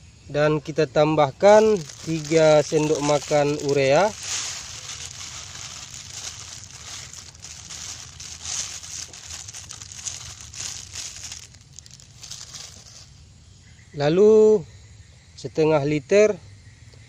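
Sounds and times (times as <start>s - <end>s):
plastic bag crinkling: 1.4s - 13.1s
granules falling onto wet slurry: 1.6s - 12.4s.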